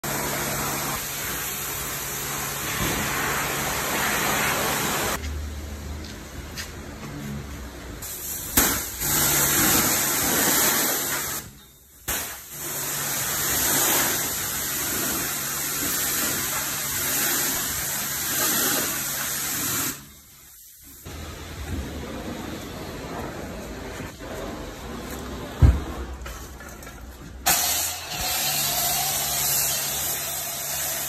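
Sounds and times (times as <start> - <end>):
pressure washer spraying water: 0.0 - 5.2, 8.0 - 22.9, 27.4 - 31.0.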